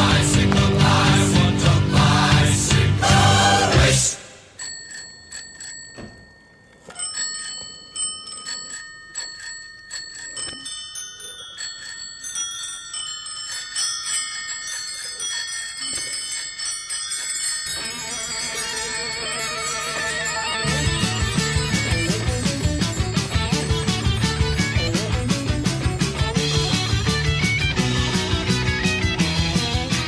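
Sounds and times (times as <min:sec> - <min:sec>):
band music: 0:00.0 - 0:04.1, 0:19.3 - 0:30.0
chimes ringing: 0:04.5 - 0:27.8.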